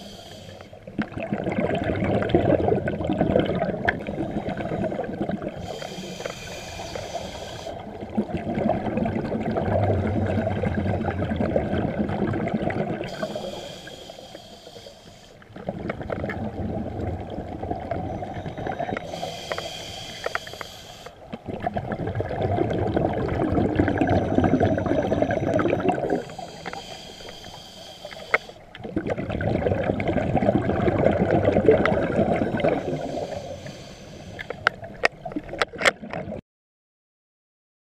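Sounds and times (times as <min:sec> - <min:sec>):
regulator hissing inhale: 0:00.0 - 0:00.8, 0:04.3 - 0:07.9, 0:13.1 - 0:15.4, 0:18.4 - 0:21.2, 0:24.8 - 0:28.6, 0:32.4 - 0:34.7
bubbling exhale underwater: 0:00.0 - 0:14.0, 0:15.4 - 0:27.2, 0:28.2 - 0:36.4.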